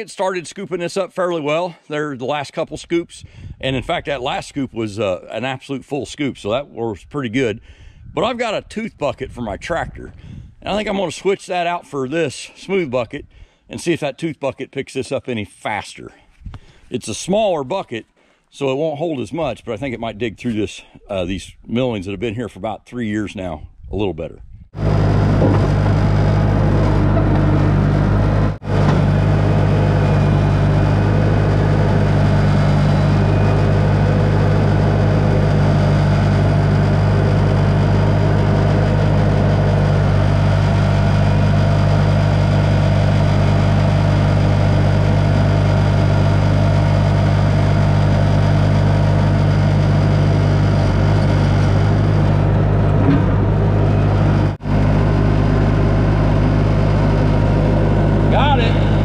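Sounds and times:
skid steer engine idling: 24.8s - 59.0s.

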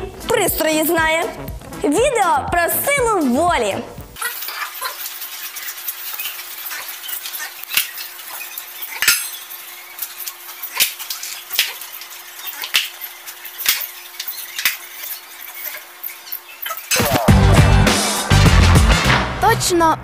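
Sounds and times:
bowls clacking on concrete floor: 4.2s - 17.2s.

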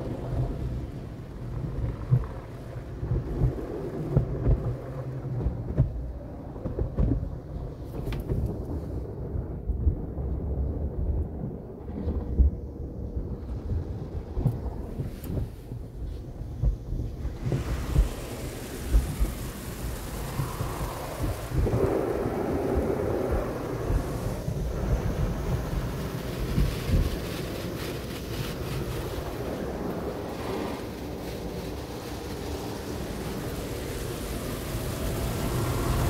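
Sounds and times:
car wash material rubbing and slapping: 0.0s - 8.9s, 14.3s - 36.0s
spray hissing on car: 17.1s - 36.0s.

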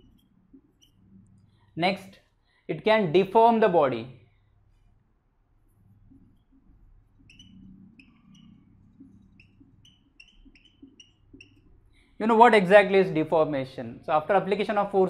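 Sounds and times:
marker squeaking on whiteboard: 0.0s - 2.2s, 5.6s - 12.8s.

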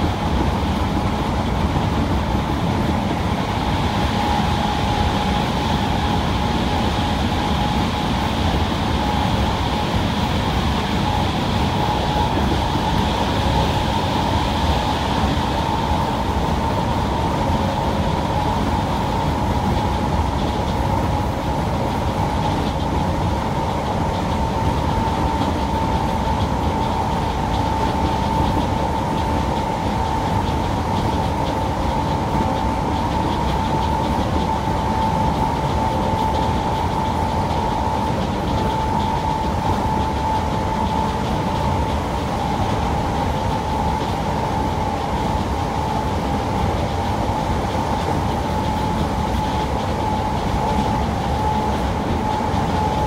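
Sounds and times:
high electric whine: 0.0s - 53.0s
train wheels rumbling on track: 0.0s - 53.0s.

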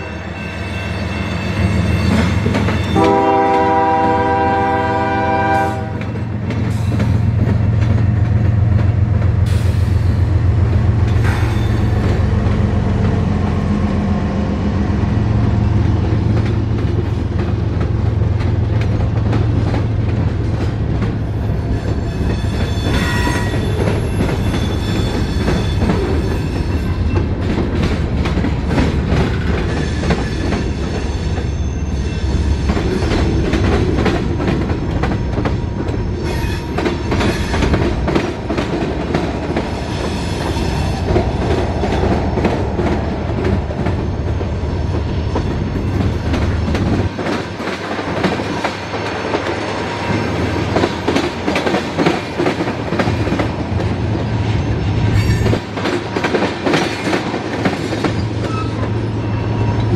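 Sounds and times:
diesel locomotive engine drone: 0.0s - 59.9s
train wheels rumbling on rail: 0.0s - 59.9s
high wheel squeal: 21.8s - 27.2s, 29.8s - 33.1s, 58.1s - 59.9s.

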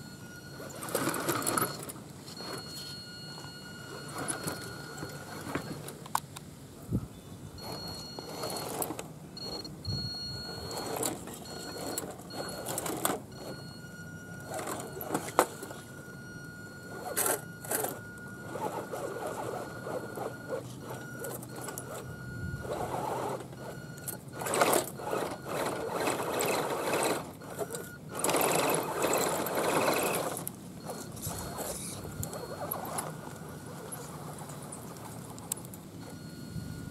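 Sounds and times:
electric motor whining: 16.7s - 35.1s.

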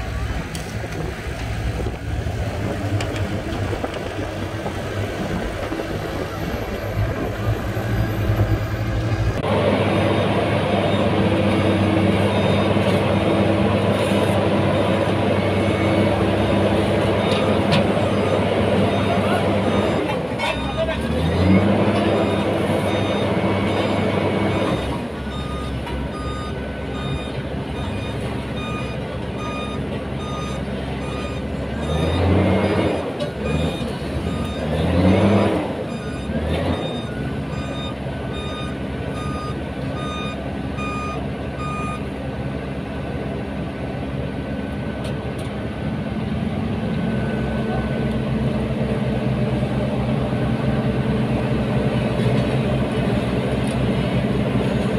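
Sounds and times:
diesel engine running: 0.0s - 54.9s
reversing alarm beeping: 15.4s - 21.0s, 22.0s - 32.8s, 33.4s - 42.0s.

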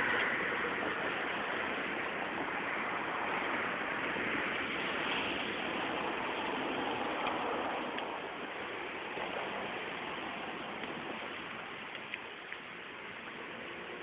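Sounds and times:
water washing over pavement: 0.0s - 14.0s
faint ticks: 10.8s - 12.7s.

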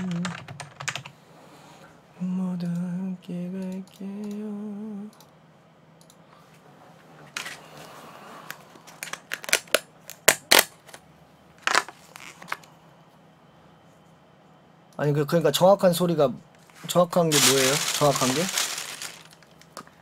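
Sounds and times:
plastic container crinkling and snapping: 9.0s - 10.7s, 17.3s - 19.8s.

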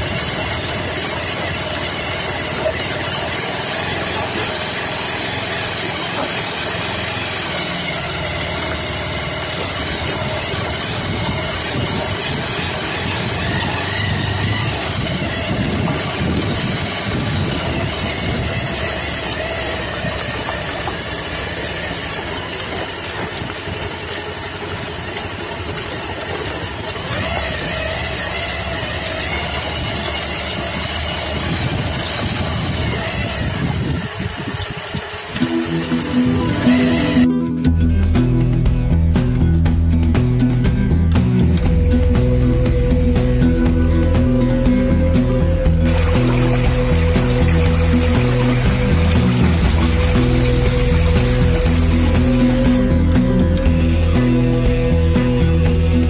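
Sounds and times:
motorcycle engine running: 0.0s - 56.0s
wind and road noise: 4.4s - 37.3s.

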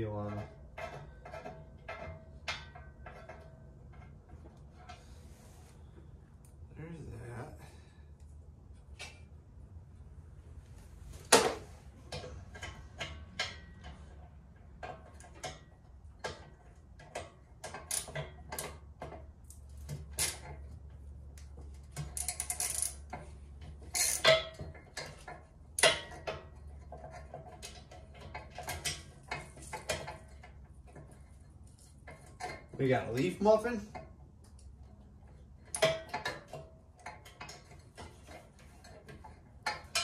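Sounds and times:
metal parts clanking: 21.9s - 34.0s, 35.6s - 40.0s
ratchet clicking: 22.1s - 23.1s, 23.9s - 24.4s.

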